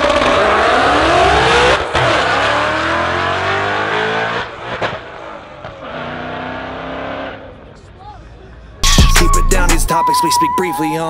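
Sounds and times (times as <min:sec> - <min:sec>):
car engine accelerating hard: 0:00.0 - 0:07.6.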